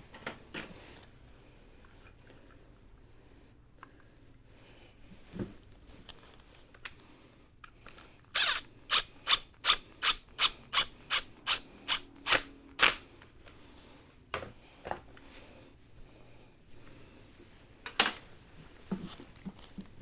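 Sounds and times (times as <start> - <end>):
cordless power driver bursts: 8.4 - 13.0.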